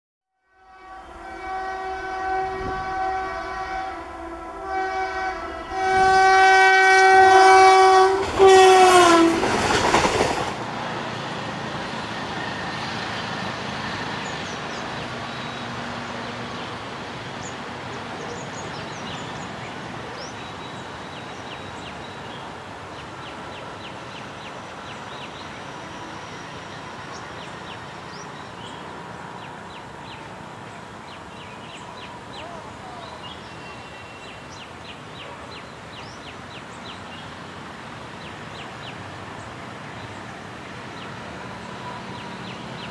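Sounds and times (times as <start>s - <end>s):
locomotive horn blasts: 0.4s - 9.5s
locomotive rushing by: 0.7s - 42.9s.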